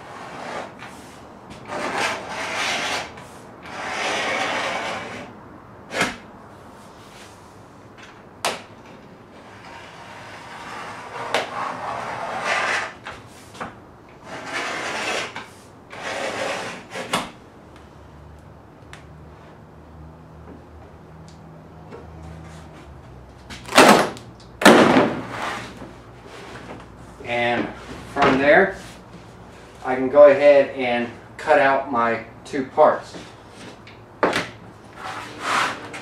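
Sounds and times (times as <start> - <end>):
knife scratching laminate: 0.0 - 5.3, 9.4 - 13.2, 14.2 - 17.3, 34.9 - 36.0.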